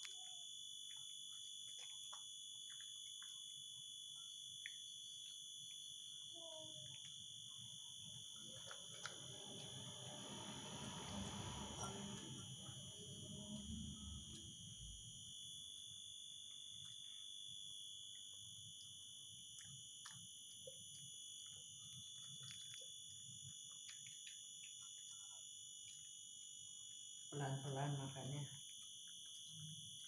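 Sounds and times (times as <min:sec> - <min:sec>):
dog chewing: 0:00.9 - 0:03.7, 0:06.9 - 0:14.5, 0:18.1 - 0:26.2
steady high-pitched whine: 0:07.0 - 0:30.0.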